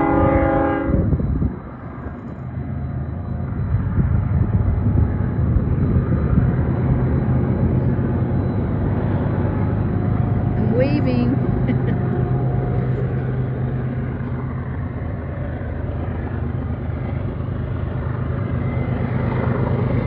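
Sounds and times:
locomotive horn: 0:00.0 - 0:01.1
locomotive rumble: 0:00.0 - 0:20.0.

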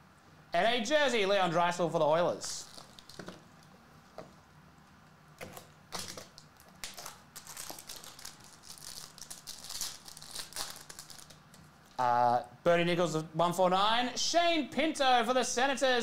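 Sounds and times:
foil wrapper crinkling: 0:02.4 - 0:03.4, 0:05.5 - 0:11.6.

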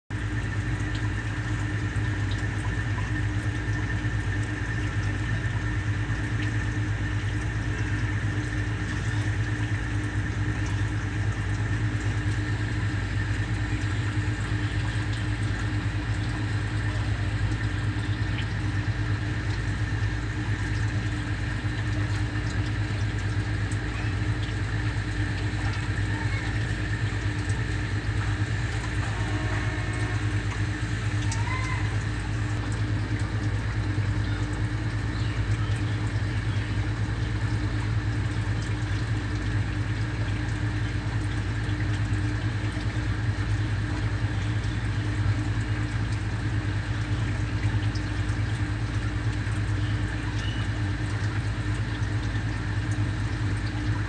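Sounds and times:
low mechanical hum: 0:00.1 - 0:54.0.

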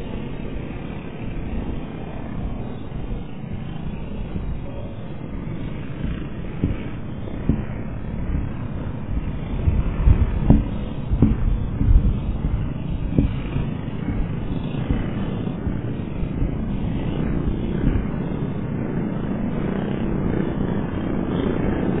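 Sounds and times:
distant engines droning: 0:00.0 - 0:22.0
brief low bumps: 0:06.0 - 0:08.6, 0:09.6 - 0:18.1.

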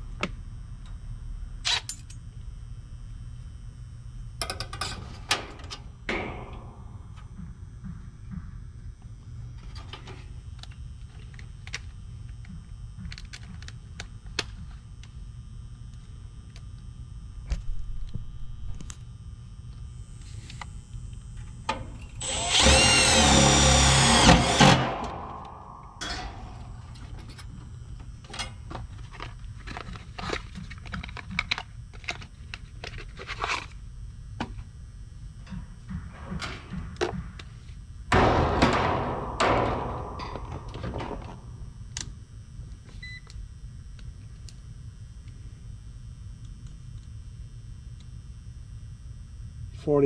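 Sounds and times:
cordless drill driving a screw: 0:22.2 - 0:25.0.

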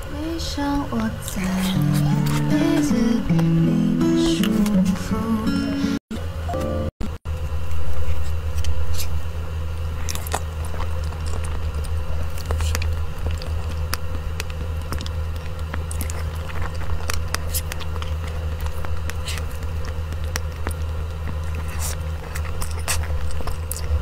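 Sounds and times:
steady low hum: 0:00.0 - 0:24.0
chewing sounds: 0:09.8 - 0:24.0.

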